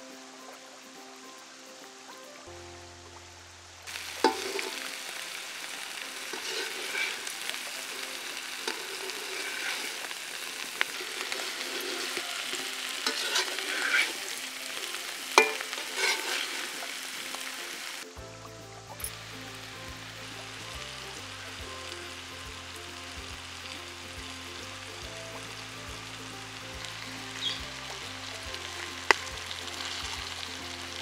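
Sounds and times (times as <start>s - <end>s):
food sizzling in oil: 0.0s - 31.0s
metal spoon clinking on pan: 4.2s - 4.9s, 10.8s - 14.4s, 15.4s - 16.8s.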